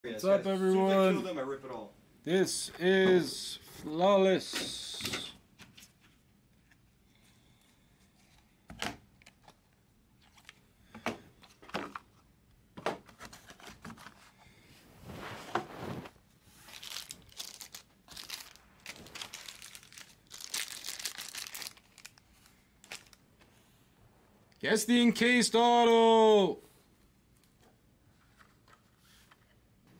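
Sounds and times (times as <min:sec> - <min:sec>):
plastic wrap crinkling and tearing: 0:15.8 - 0:23.2.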